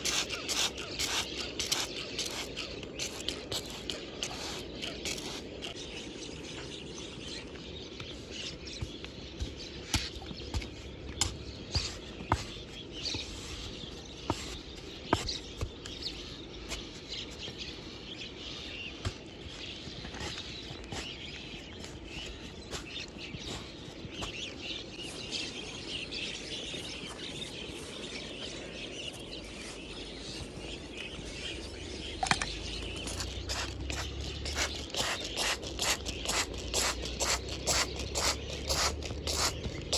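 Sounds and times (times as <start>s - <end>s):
spray bottle squirting water: 0.0s - 5.7s, 33.0s - 39.9s
metal trowel scraping dirt: 0.0s - 5.8s, 32.2s - 39.9s
birds chirping: 0.0s - 39.9s.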